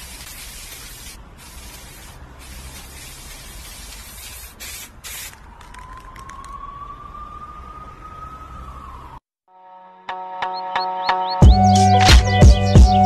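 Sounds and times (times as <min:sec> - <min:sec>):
spray-paint can hissing: 0:00.0 - 0:05.8.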